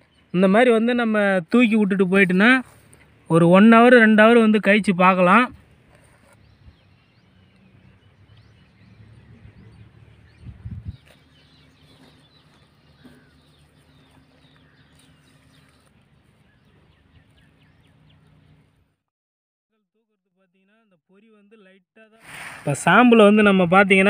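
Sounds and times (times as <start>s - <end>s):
small birds chirping: 0.0s - 3.4s, 5.5s - 18.9s
low rumble on microphone: 5.5s - 18.8s.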